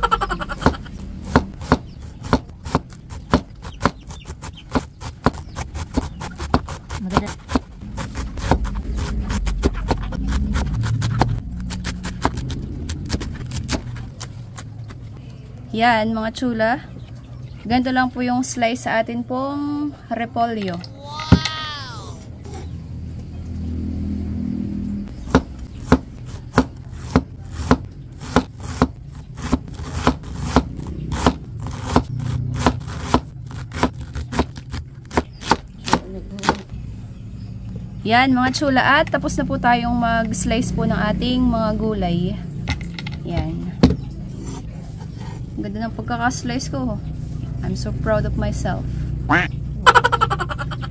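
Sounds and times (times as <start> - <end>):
knife chopping on cutting board: 0.6 - 14.7, 25.3 - 36.7
low rumble: 7.7 - 17.8.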